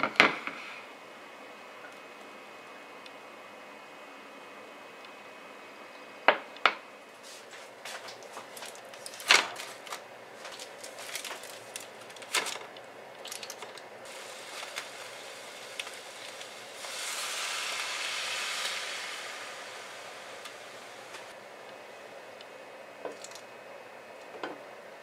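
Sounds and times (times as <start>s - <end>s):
foil crinkling: 8.0s - 21.3s
water poured into pan: 14.1s - 21.3s.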